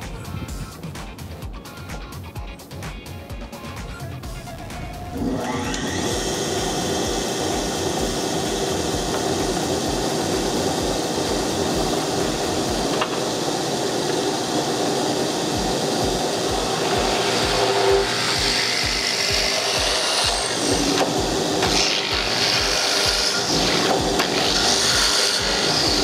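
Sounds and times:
electric motor drilling into wood: 0:05.1 - 0:26.0.

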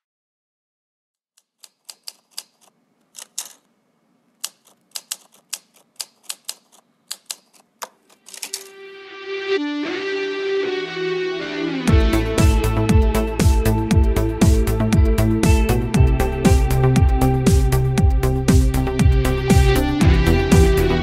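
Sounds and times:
sharp clicks like keys: 0:01.4 - 0:03.7, 0:04.4 - 0:08.7
music with held chords: 0:08.7 - 0:21.0.

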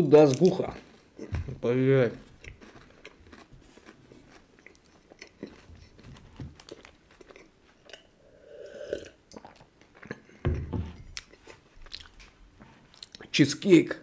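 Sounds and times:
chewing and crunching cookies: 0:00.0 - 0:08.2, 0:08.9 - 0:13.4
dull thump: 0:10.4 - 0:11.0.

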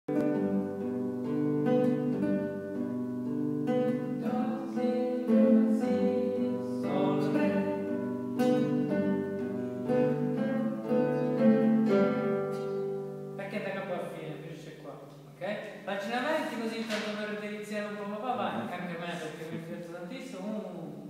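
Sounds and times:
classical guitar chords: 0:00.1 - 0:15.4.

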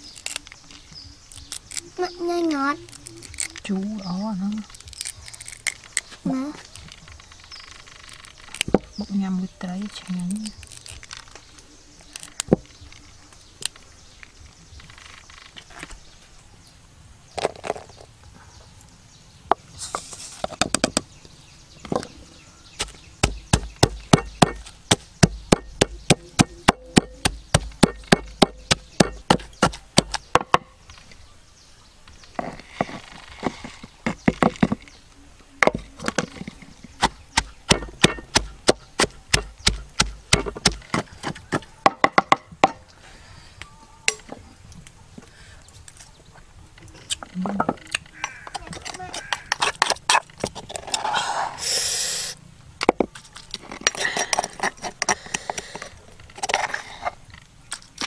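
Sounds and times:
knife chopping on wooden board: 0:22.8 - 0:30.6, 0:37.0 - 0:41.4.

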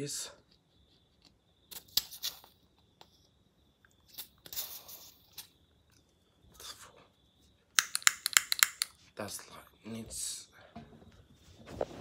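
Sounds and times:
lighter ignition clicks: 0:07.8 - 0:08.9.

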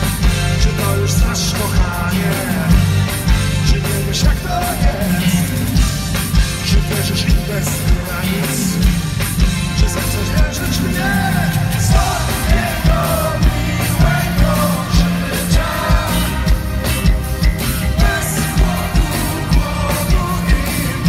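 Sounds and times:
pop-rock band playing: 0:00.0 - 0:21.0
steady drum beat: 0:00.0 - 0:21.0
person singing: 0:17.9 - 0:21.0.

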